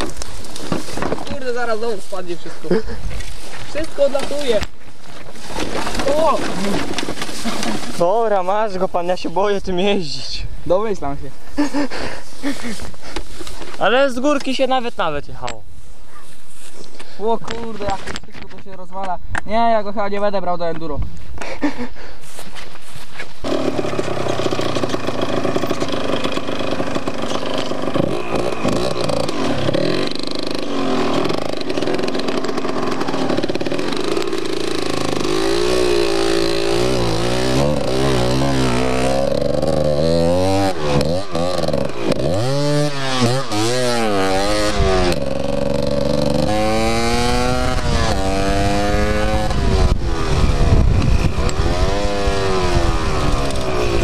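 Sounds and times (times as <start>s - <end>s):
motorcycle engine revving: 23.4s - 54.0s.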